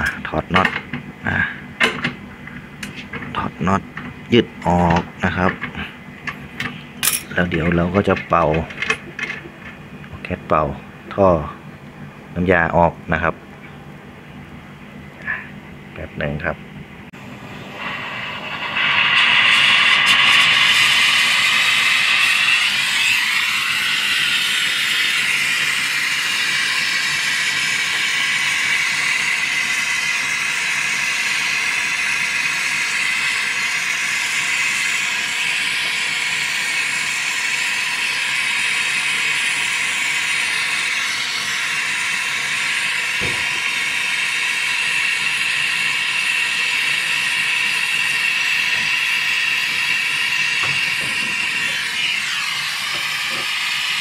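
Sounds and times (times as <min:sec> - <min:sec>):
torch flame hissing: 0:17.5 - 0:54.0.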